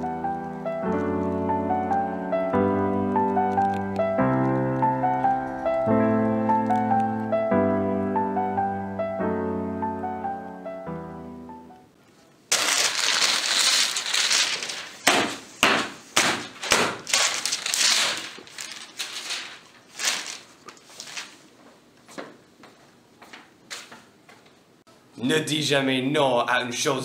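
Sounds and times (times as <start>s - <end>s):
music: 0.0s - 12.0s
sharp cracks and knocks: 12.5s - 19.3s.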